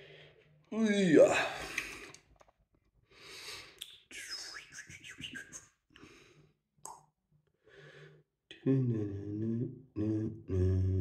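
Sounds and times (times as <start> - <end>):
man breathing quietly: 0.0 - 0.6, 3.0 - 3.8, 5.9 - 6.6, 7.5 - 8.3
man whispering: 4.0 - 5.8.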